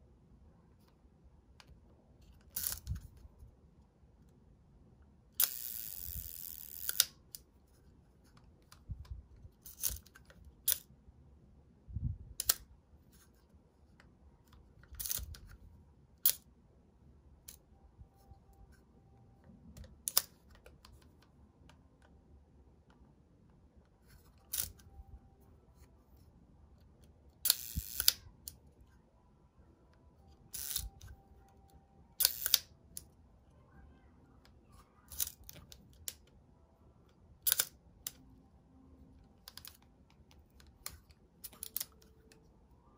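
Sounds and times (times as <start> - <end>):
camera handling noise: 24.1 - 24.9.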